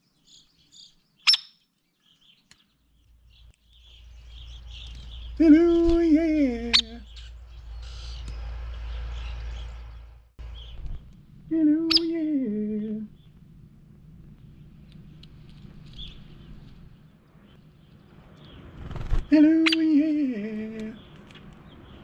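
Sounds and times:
faint bird chirps: 0:00.0 - 0:06.0, 0:06.6 - 0:13.4
woodpecker peek calls: 0:01.2 - 0:01.6
low rumble: 0:03.1 - 0:22.0.

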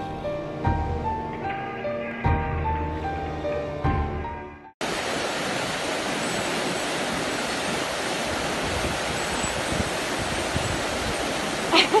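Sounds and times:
music: 0:00.0 - 0:04.8.

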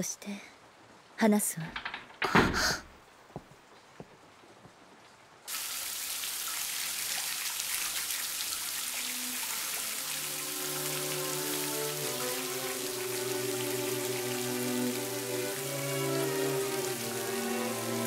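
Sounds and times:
shower water spray hiss: 0:05.5 - 0:18.0.

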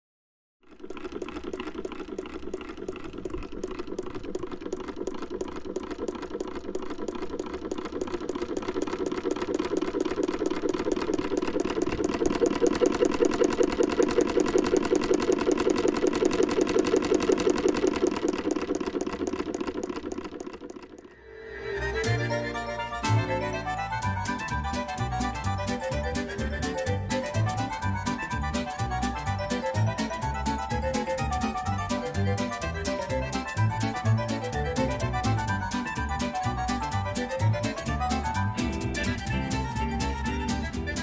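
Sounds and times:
sewing machine clattering: 0:00.6 - 0:21.1.

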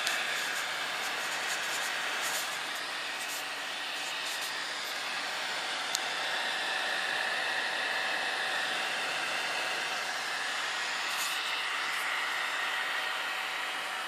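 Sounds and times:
fan hiss: 0:00.0 - 0:14.0
stepper motor whine: 0:00.0 - 0:14.0.

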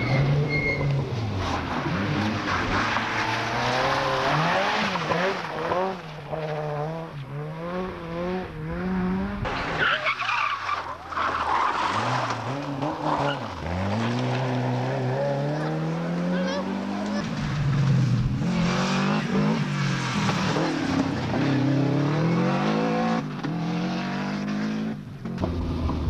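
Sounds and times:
tyres skidding on gravel: 0:00.0 - 0:07.3, 0:09.4 - 0:22.0
rally car engine revving: 0:00.0 - 0:26.0.

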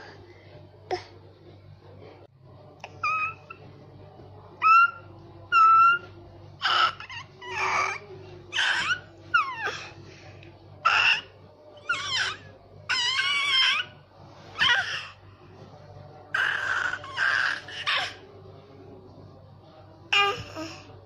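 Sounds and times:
baby squealing and cooing: 0:04.6 - 0:09.9, 0:10.8 - 0:11.2, 0:14.6 - 0:15.1, 0:16.4 - 0:18.2.

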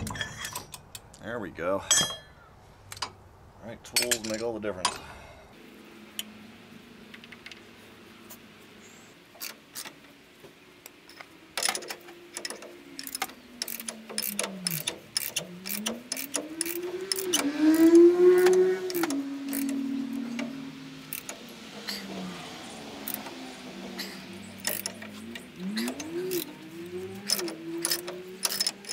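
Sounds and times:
ratchet clicking: 0:11.1 - 0:22.0, 0:23.0 - 0:23.3, 0:24.6 - 0:28.9
pitched drone: 0:11.6 - 0:28.9.

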